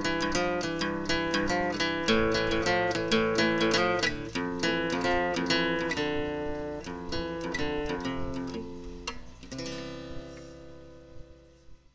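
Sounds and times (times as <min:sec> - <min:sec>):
acoustic guitar music: 0:00.0 - 0:11.9.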